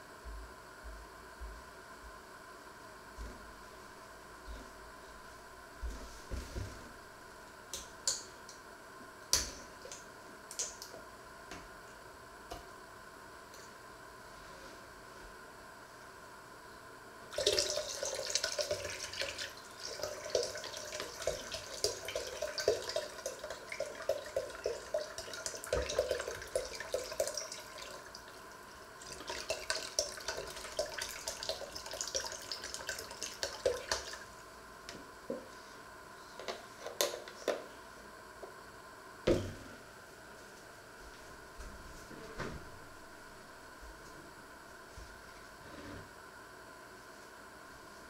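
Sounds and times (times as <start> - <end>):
liquid pouring into a jug: 17.3 - 34.4.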